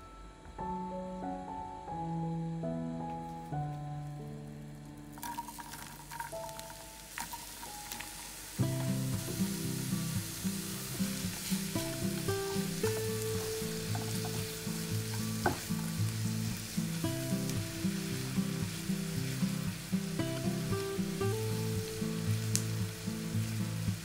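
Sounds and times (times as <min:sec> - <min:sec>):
soft background music: 0:00.0 - 0:24.0
onions sizzling in butter: 0:03.6 - 0:24.0.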